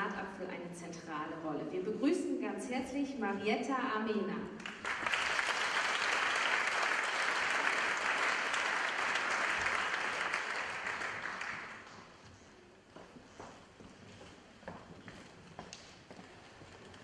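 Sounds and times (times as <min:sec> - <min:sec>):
audience applauding: 0:04.6 - 0:12.1.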